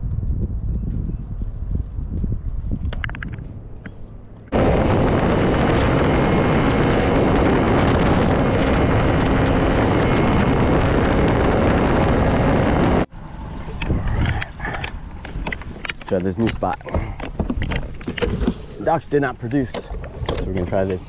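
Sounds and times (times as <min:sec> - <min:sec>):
wind on microphone: 0:00.0 - 0:16.0
outboard motor drone: 0:04.5 - 0:15.0.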